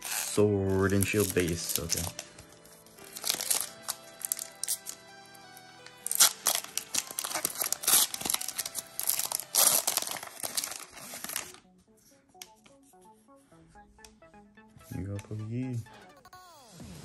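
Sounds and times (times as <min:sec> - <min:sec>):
foil wrapper crinkling and tearing: 0:00.0 - 0:05.1, 0:05.8 - 0:11.6
soft background music: 0:00.0 - 0:17.0.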